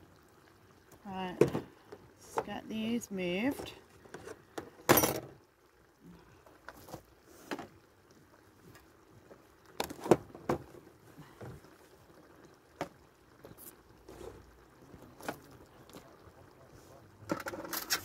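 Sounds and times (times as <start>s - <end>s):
kitchen items knocking and clinking: 4.8s - 5.3s.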